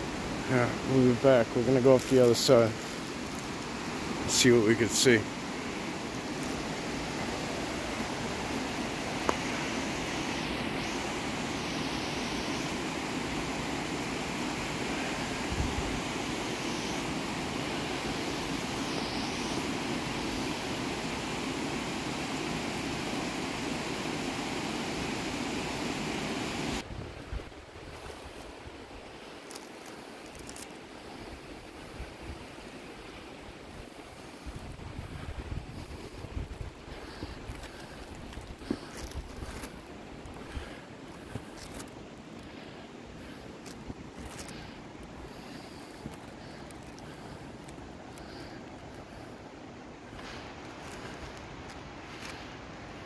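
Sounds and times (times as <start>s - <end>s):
waterfall rushing: 0.0s - 26.8s.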